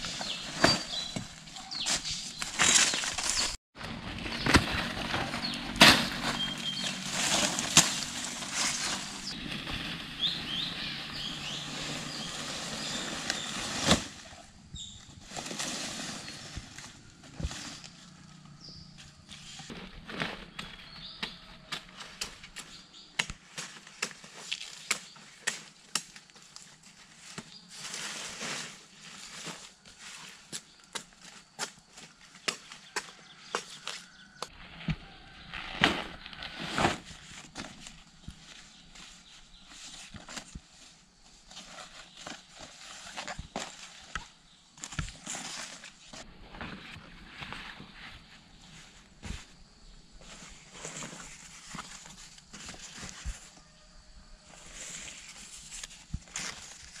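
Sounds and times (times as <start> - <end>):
crunching on dry leaf litter: 0.0 - 22.7, 54.5 - 57.0
leaves and stems rustling: 0.0 - 33.1, 34.6 - 53.9, 54.5 - 57.0.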